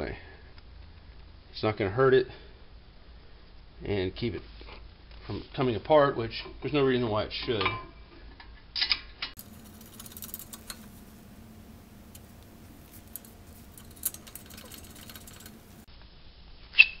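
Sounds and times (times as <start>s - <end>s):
faint steady hum: 9.4s - 16.1s
metal bracket and bolts clicking: 12.0s - 15.8s.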